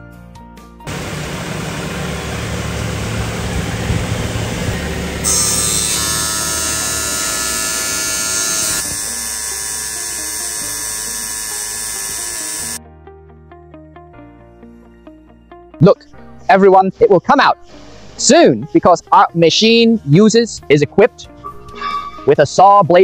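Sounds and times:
tile grinding machine whir: 0:00.9 - 0:12.8.

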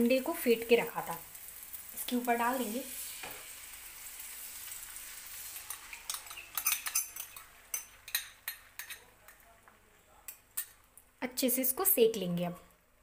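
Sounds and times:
egg sizzling in a frying pan: 0:00.0 - 0:09.0.

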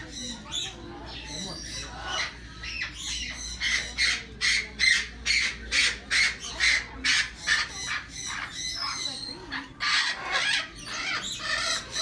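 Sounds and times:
parrot squawking: 0:00.0 - 0:12.0.

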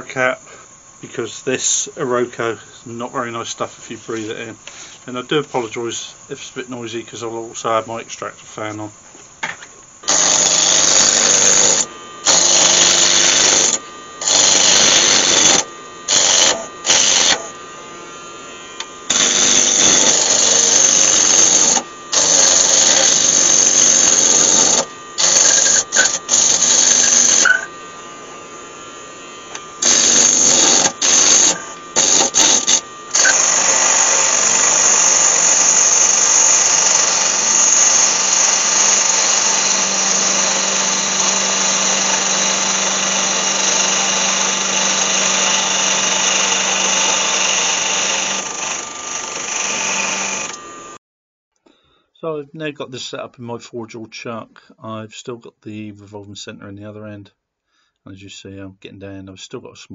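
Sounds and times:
extractor fan: 0:00.0 - 0:51.0
lathe motor hum: 0:00.0 - 0:51.0
lathe tool cutting wood: 0:10.0 - 0:51.0.

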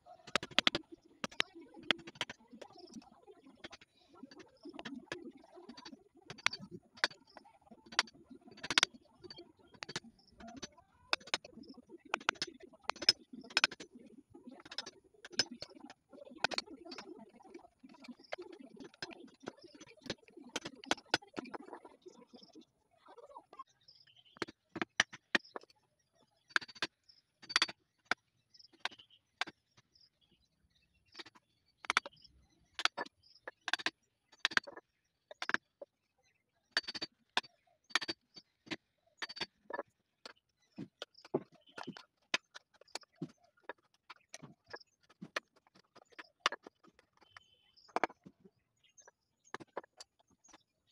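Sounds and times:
chisel cracking wood: 0:00.3 - 0:02.3, 0:07.9 - 0:08.9, 0:09.7 - 0:11.4, 0:12.2 - 0:13.8, 0:27.5 - 0:27.7, 0:36.8 - 0:37.1.

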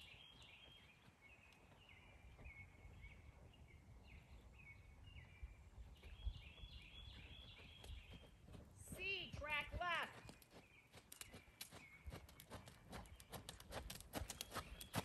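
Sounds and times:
songbird chirping: 0:00.0 - 0:15.0
wind rumble on microphone: 0:01.9 - 0:08.3.

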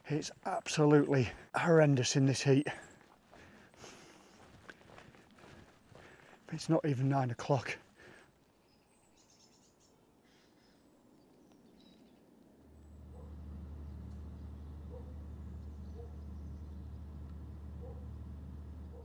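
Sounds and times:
steady low hum: 0:12.6 - 0:19.0.

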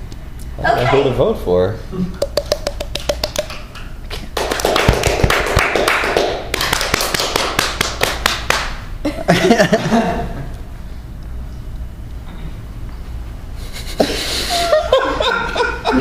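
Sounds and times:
evenly spaced hand claps: 0:02.2 - 0:08.8
audience clapping and cheering: 0:02.3 - 0:08.8.

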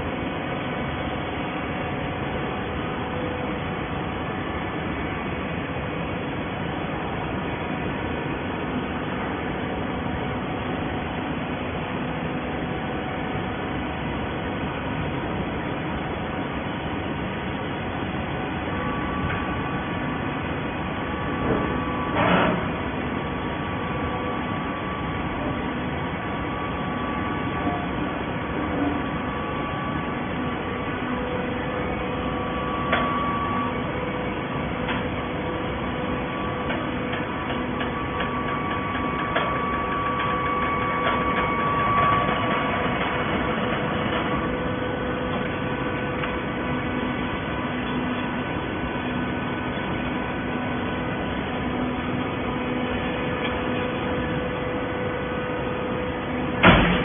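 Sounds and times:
baler machinery humming and whining: 0:00.0 - 0:57.0
short mechanical clanks: 0:21.4 - 0:22.7.

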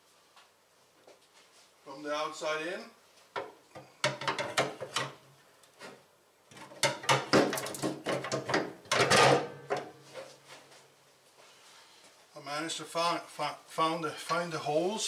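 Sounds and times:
metallic knocks clunks and scrapes: 0:03.4 - 0:05.2, 0:05.8 - 0:10.4.

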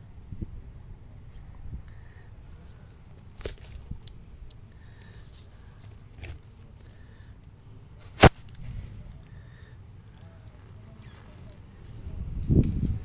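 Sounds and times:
loud sharp snap: 0:08.2 - 0:08.7.

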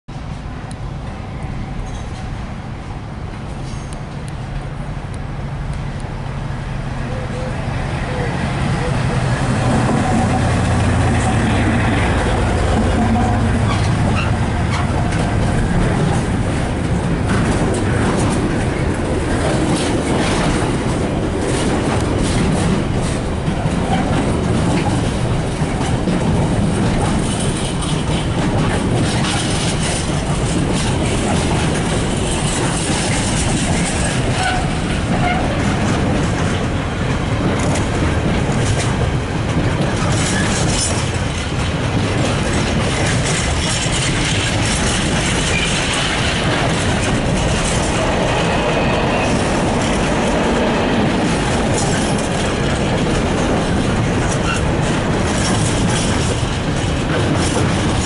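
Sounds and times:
freight train wheels rumbling: 0:00.1 - 0:58.0.

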